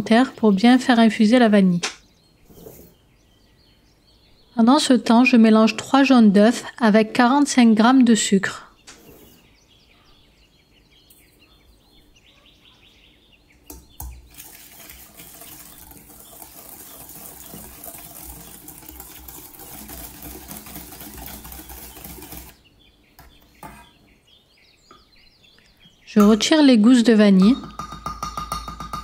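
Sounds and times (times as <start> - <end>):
eggs being beaten in a bowl: 13.7 - 22.6, 27.4 - 29.0.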